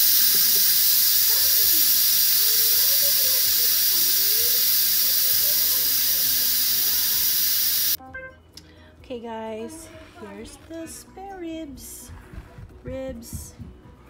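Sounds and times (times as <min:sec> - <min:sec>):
steam release valve hissing: 0:00.0 - 0:08.0.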